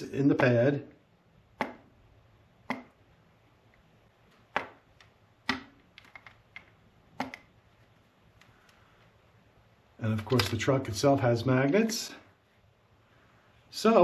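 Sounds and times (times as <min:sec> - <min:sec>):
sharp plastic clicks: 0:04.4 - 0:07.5.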